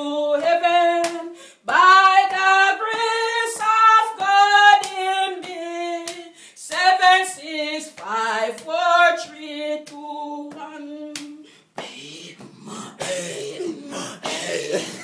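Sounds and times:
woman singing: 0:00.0 - 0:13.0
hand claps on the beat: 0:00.3 - 0:07.1, 0:07.8 - 0:12.5, 0:14.2 - 0:14.5
breathy laughing: 0:13.1 - 0:15.0.

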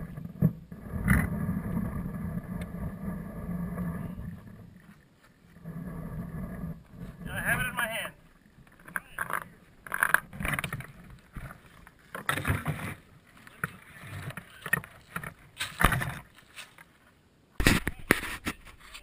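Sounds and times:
rustling in dry leaves: 0:15.4 - 0:17.2.

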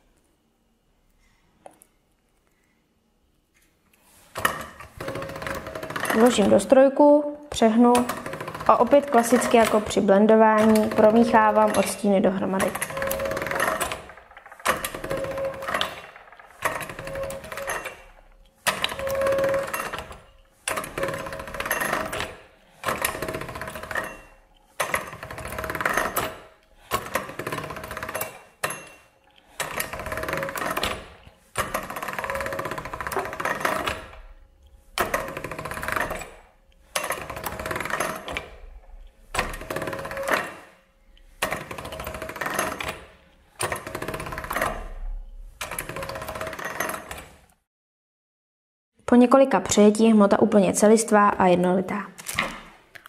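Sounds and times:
pasta machine gears rattling: 0:04.3 - 0:06.7, 0:07.5 - 0:47.4.

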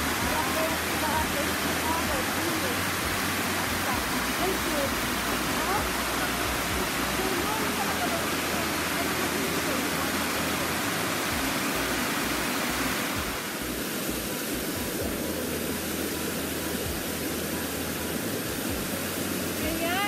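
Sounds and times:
waterfall rushing into a pool: 0:00.0 - 0:20.0.

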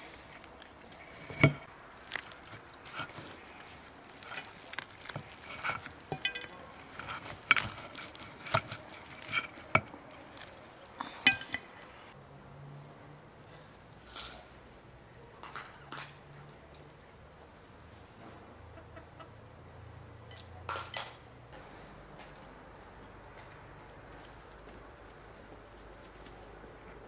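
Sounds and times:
cutlery clinking on china plate: 0:05.6 - 0:09.9, 0:11.3 - 0:11.7.

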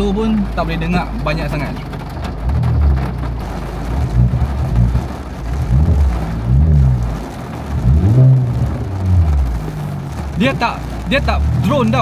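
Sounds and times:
car engine revving from inside cabin: 0:02.4 - 0:12.0.

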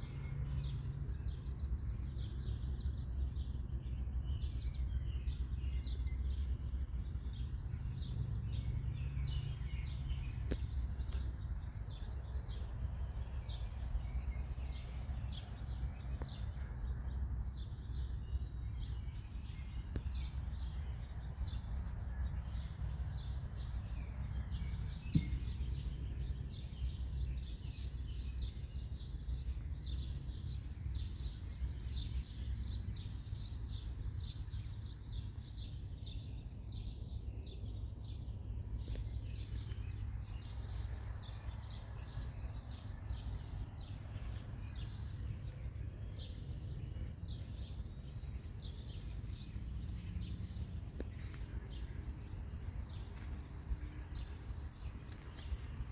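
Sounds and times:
birds chirping and singing: 0:00.0 - 0:55.9
steady low rumble: 0:00.0 - 0:55.9
sharp tap: 0:25.1 - 0:25.5.

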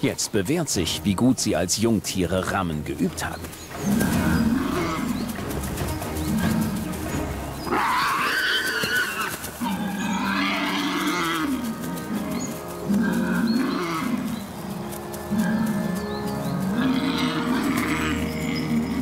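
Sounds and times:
background music: 0:00.0 - 0:19.0
wild boars grunting and roaring: 0:03.6 - 0:19.0.

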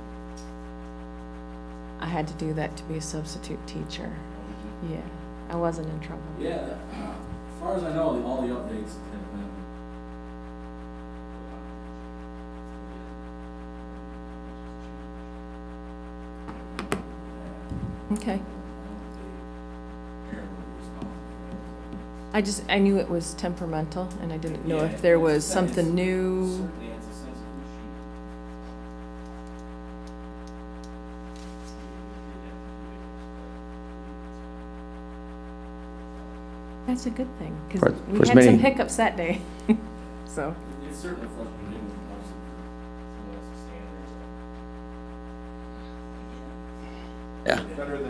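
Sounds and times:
electrical mains hum: 0:00.0 - 0:48.0
faint clicks: 0:28.0 - 0:31.5.

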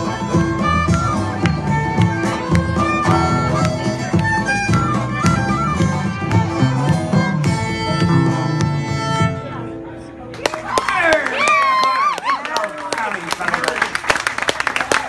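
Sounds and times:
bodhran beat: 0:00.0 - 0:09.5
strummed acoustic guitars: 0:00.0 - 0:09.8
fiddle melody: 0:00.0 - 0:10.3
upright bass: 0:00.0 - 0:10.3.

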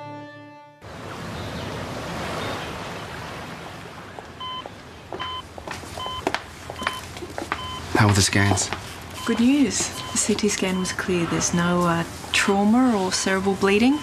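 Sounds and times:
music theme: 0:00.0 - 0:00.8
patient monitor beeping: 0:04.4 - 0:14.0.

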